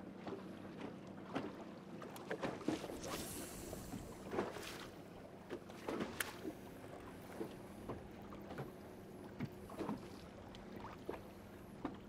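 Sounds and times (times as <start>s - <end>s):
waves slapping boat hull: 0.0s - 12.0s
wind: 0.0s - 12.0s
sharp splashes: 2.3s - 5.0s
steady low hum: 2.6s - 12.0s.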